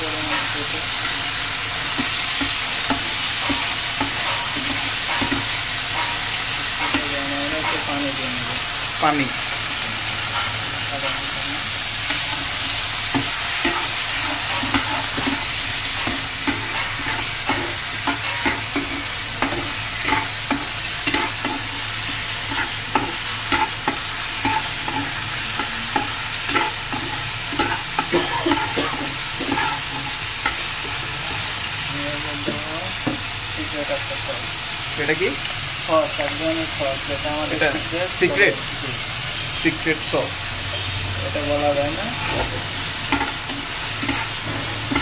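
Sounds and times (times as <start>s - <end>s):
chicken sizzling in a frying pan: 0.0s - 45.0s
metal spatula scraping a pan: 10.2s - 31.5s, 40.7s - 45.0s.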